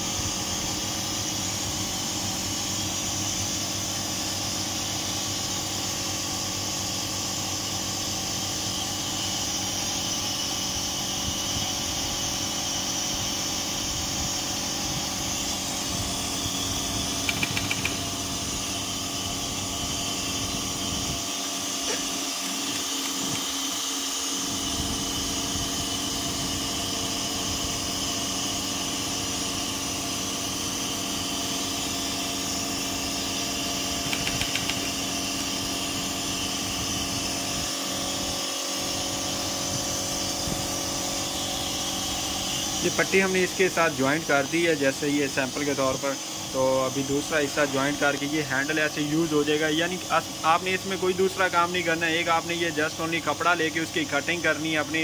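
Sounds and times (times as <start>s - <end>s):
sewing machine humming: 15.3s - 24.5s, 33.8s - 35.3s
quick ticks: 17.2s - 18.0s, 34.1s - 34.9s.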